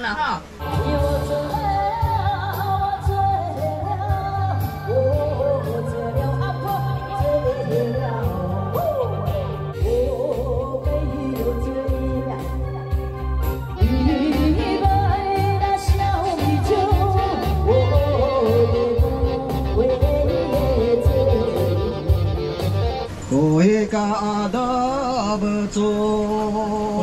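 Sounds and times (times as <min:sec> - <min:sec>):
singing over a steady beat: 0:00.6 - 0:13.2, 0:13.8 - 0:27.0.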